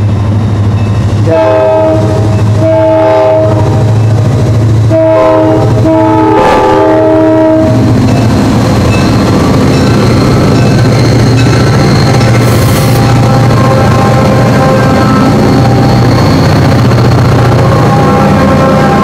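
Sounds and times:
locomotive air horn blasts: 1.2 - 3.8, 4.8 - 7.8, 17.6 - 19.0.

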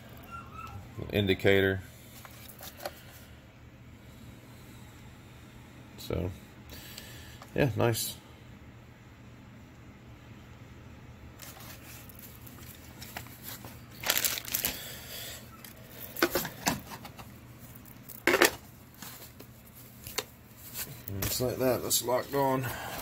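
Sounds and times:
plastic packaging crinkling: 11.4 - 21.4.

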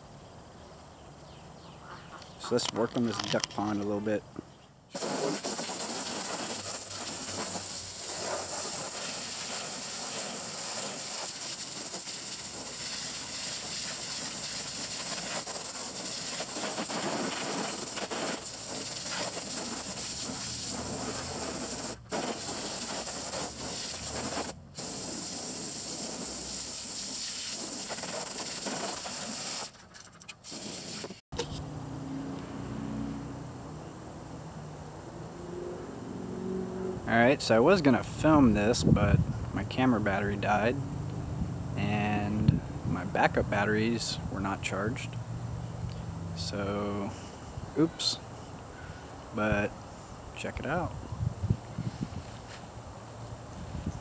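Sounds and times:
hose spraying water: 4.9 - 31.2.

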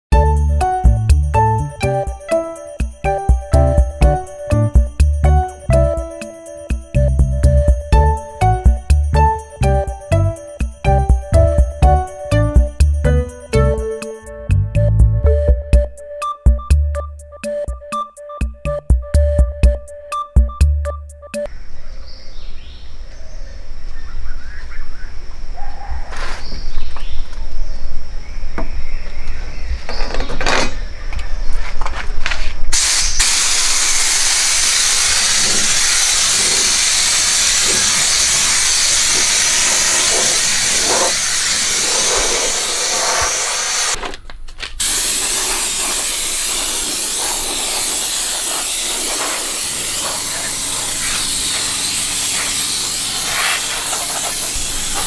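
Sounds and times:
spray gun hissing: 32.8 - 44.0, 44.8 - 55.0.

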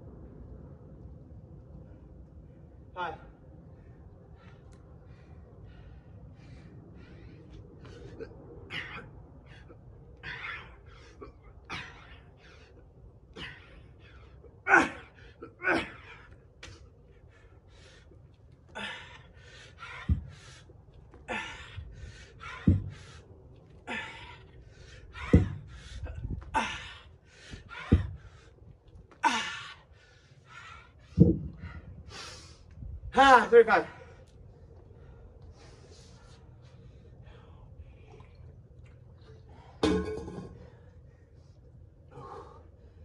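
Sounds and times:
man panting exhales: 18.7 - 23.2, 42.1 - 42.8
dull thumps: 19.9 - 20.5, 22.4 - 23.2, 25.2 - 26.3, 27.7 - 28.3, 31.2 - 31.7.

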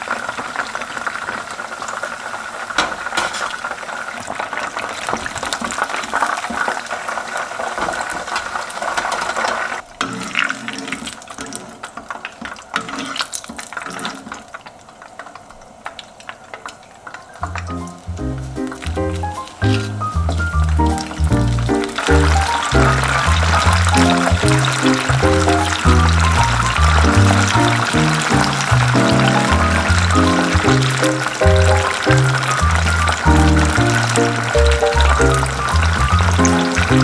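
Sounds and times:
chicken deep-frying in oil: 0.0 - 37.0
music: 17.4 - 37.0.

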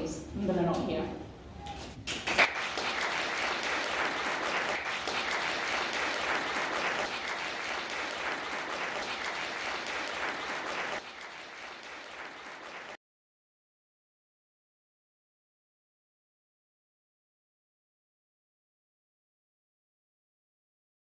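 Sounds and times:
audience applauding: 2.0 - 13.0.

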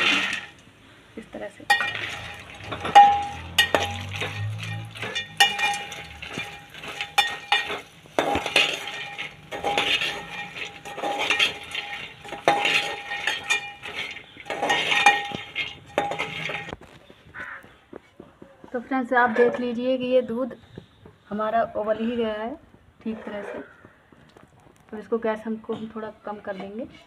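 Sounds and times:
metal ladle scraping a pot: 0.0 - 0.6, 1.7 - 16.8, 23.0 - 23.7
pot ringing: 1.7 - 16.8.

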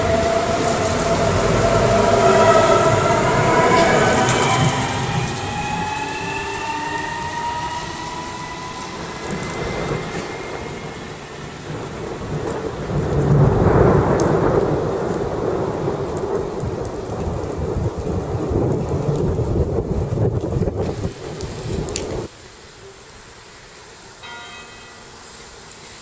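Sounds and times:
electric train motor whine: 0.0 - 12.8
thunder rolling: 0.0 - 22.3
rain falling: 0.0 - 26.0.

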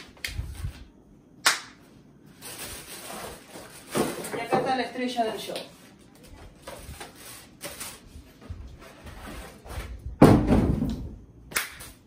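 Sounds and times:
cardboard and plastic rustling: 2.3 - 10.2
loud thud: 10.2 - 11.2.

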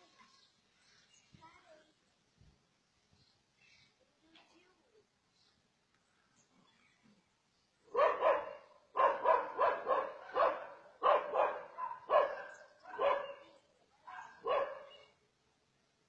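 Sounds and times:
dog barking: 7.9 - 15.1.

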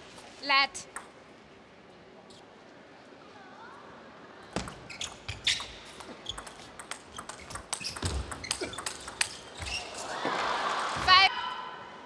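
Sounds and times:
ping pong ball hitting bats: 4.6 - 9.8
ping pong ball bouncing on table: 6.3 - 9.4.

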